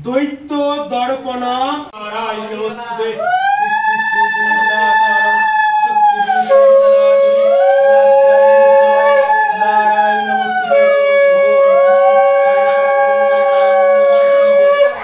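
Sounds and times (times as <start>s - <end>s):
small hand bell ringing: 2.0s - 6.8s, 7.5s - 9.9s, 10.8s - 11.5s, 12.2s - 15.0s
conch shell sliding pitch: 5.2s - 15.0s
conch shell steady blast: 6.4s - 9.8s, 10.5s - 15.0s.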